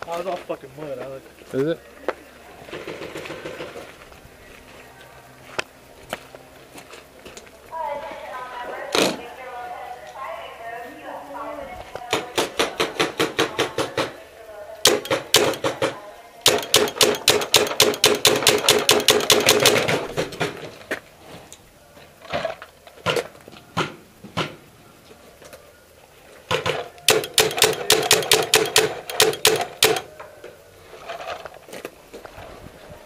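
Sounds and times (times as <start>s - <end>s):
steady hum: 14.2s - 20.4s, 24.0s - 30.9s
paintball gun firing: 14.9s - 20.6s, 26.5s - 30.1s.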